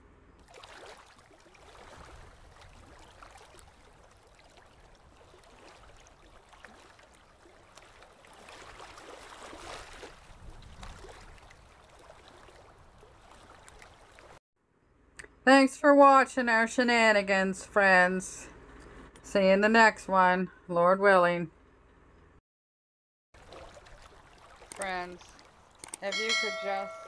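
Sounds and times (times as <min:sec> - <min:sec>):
small waves washing onto beach: 0:00.4 - 0:14.4.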